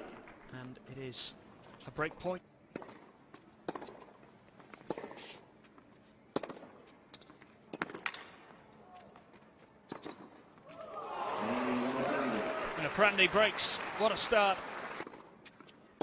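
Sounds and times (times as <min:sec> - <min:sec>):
tennis ball hit by rackets: 0:02.7 - 0:04.1, 0:04.8 - 0:05.3, 0:06.3 - 0:06.8, 0:07.7 - 0:08.4, 0:09.9 - 0:10.3.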